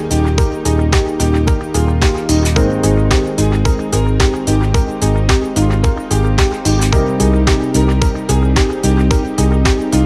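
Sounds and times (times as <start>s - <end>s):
deep bass line: 0.0s - 10.0s
music with steady beat: 0.0s - 10.0s.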